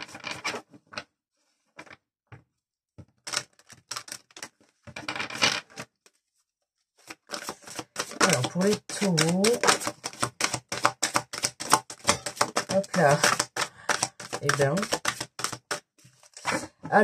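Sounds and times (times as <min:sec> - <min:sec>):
cards being shuffled: 0:07.0 - 0:16.6.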